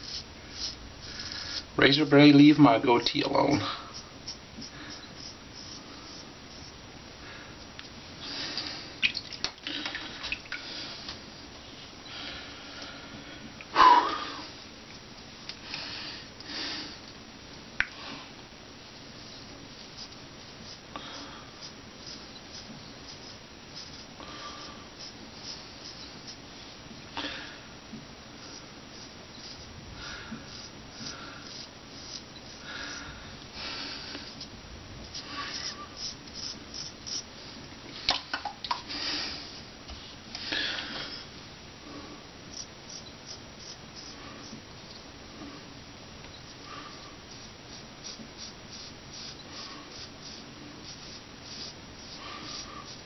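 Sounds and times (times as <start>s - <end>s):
razor scraping beard stubble: 3.2s - 6.8s, 21.6s - 24.1s, 28.4s - 29.7s, 30.3s - 33.0s, 35.1s - 37.3s, 42.5s - 44.6s, 47.3s - 53.0s.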